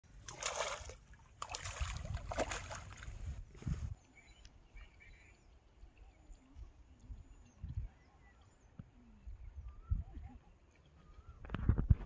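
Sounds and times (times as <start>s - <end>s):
fish thrashing and splashing in water: 0.2s - 3.2s.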